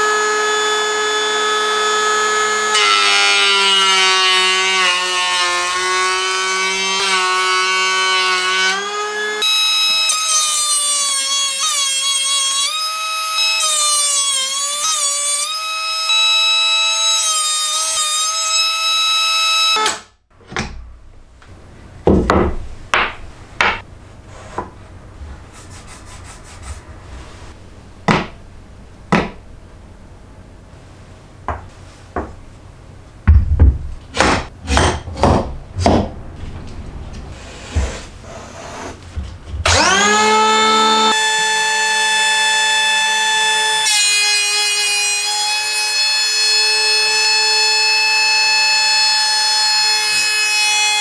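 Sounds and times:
wood blocks and metal knocking: 29.1 - 29.4
electric hand planer whining: 39.6 - 51.0.

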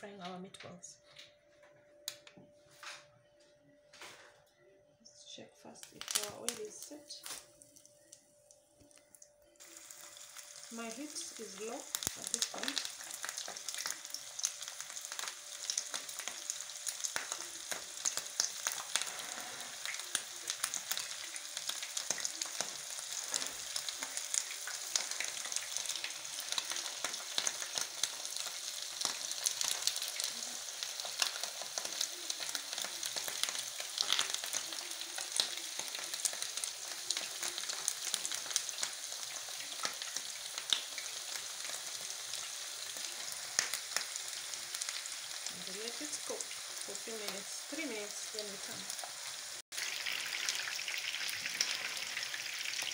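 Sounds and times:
meatballs sizzling in oil: 5.9 - 8.3, 8.9 - 52.9.

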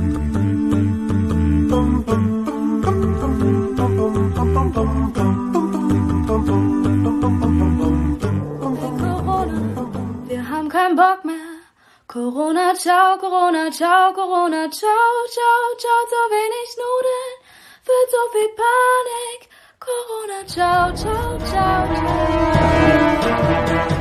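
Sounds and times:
backing music: 0.0 - 10.4, 20.5 - 24.0
woman singing: 8.3 - 23.3.

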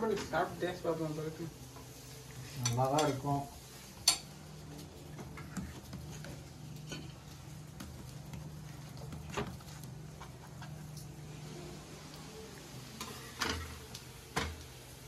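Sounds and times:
utensils clinking against pots: 2.5 - 3.4, 4.0 - 4.4.

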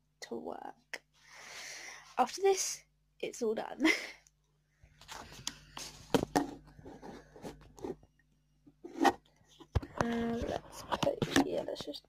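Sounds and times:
rustling and scraping: 5.0 - 8.1, 8.7 - 11.9.

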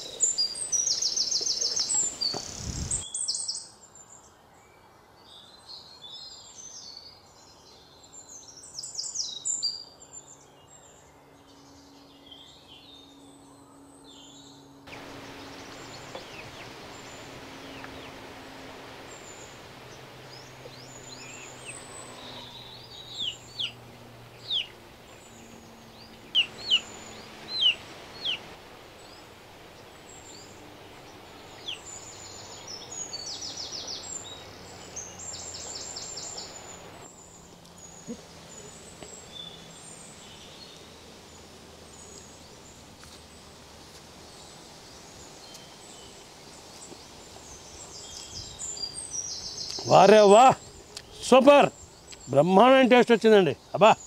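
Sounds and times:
buzzy bird trill: 14.9 - 28.5
high bird chirps: 20.3 - 23.8, 24.4 - 28.4.

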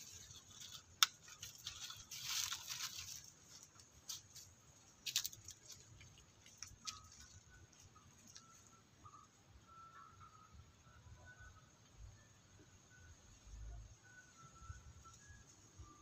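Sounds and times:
monkeys scratching rustle: 0.0 - 8.7.

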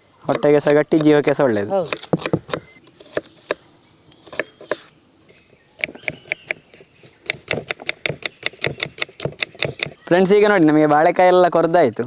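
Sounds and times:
knife chopping on wooden board: 0.3 - 1.2, 1.8 - 3.6, 5.8 - 6.6, 7.2 - 10.0.

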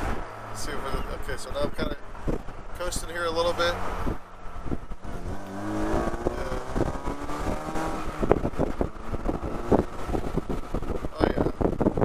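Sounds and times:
wind buffeting microphone: 0.0 - 3.2, 3.8 - 12.0
car engine rising in pitch: 3.5 - 11.1.

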